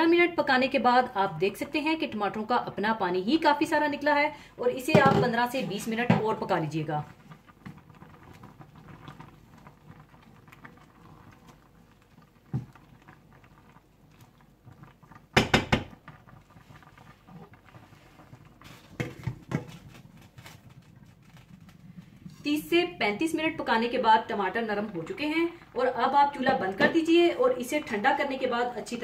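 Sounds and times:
kitchen knocks: 0:04.9 - 0:05.3, 0:15.4 - 0:15.9.

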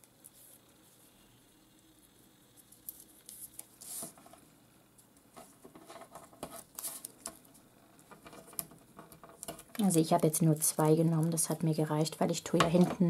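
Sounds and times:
paper and tape rustling: 0:05.4 - 0:07.4.

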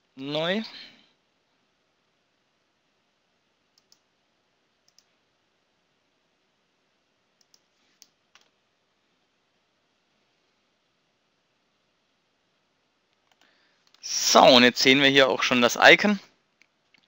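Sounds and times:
computer mouse clicks: 0:03.7 - 0:04.1, 0:04.8 - 0:05.1, 0:07.4 - 0:08.6, 0:13.1 - 0:14.0.

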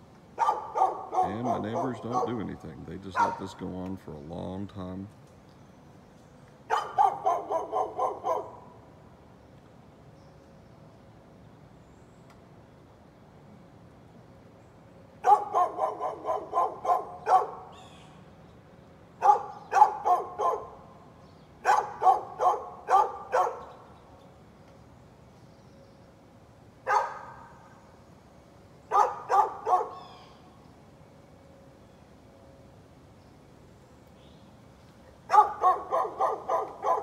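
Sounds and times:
dog barking: 0:00.4 - 0:02.5, 0:03.2 - 0:03.5, 0:06.7 - 0:08.6, 0:15.2 - 0:17.7, 0:19.2 - 0:20.8, 0:21.6 - 0:23.7, 0:26.9 - 0:27.4, 0:28.9 - 0:30.0, 0:35.3 - 0:37.0.

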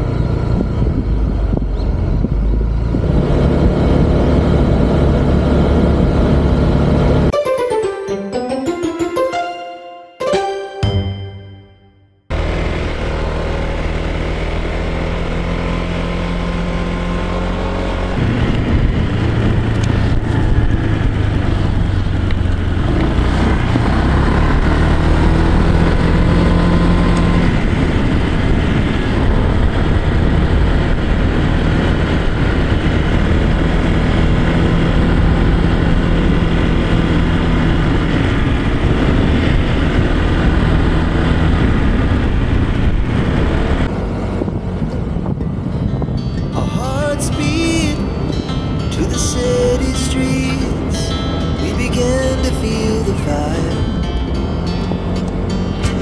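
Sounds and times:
wind and road noise: 0:00.0 - 0:07.4, 0:12.3 - 0:56.0
scooter engine running: 0:12.3 - 0:45.7.

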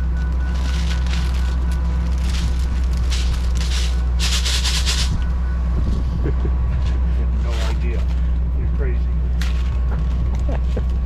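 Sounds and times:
steady low hum: 0:00.0 - 0:11.0
wrapping paper tearing: 0:00.5 - 0:05.1.

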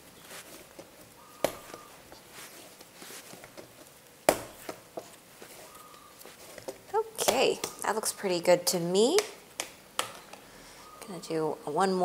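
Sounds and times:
kneading dough by hand: 0:00.0 - 0:10.4
dough slapping on table: 0:00.8 - 0:05.6, 0:09.1 - 0:10.2.

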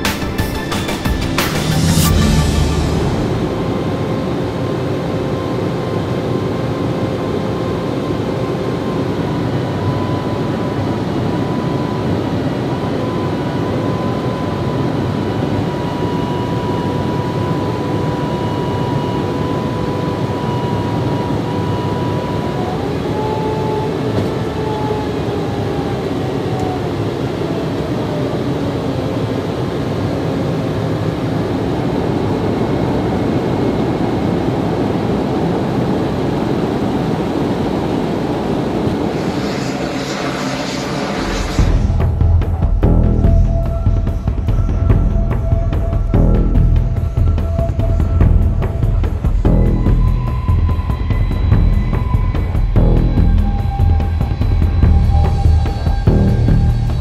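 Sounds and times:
second engine tone: 0:00.0 - 0:07.0, 0:37.6 - 0:57.0
high engine whine: 0:00.0 - 0:57.0
jet engine and airflow rush: 0:00.0 - 0:57.0.

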